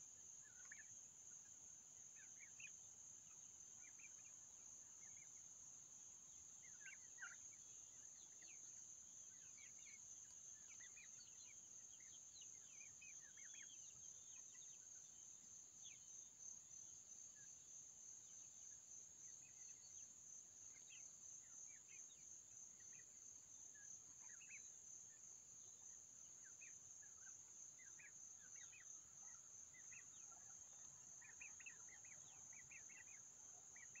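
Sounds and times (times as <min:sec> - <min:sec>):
young turkeys peeping: 0:00.5 - 0:00.9, 0:29.8 - 0:34.0.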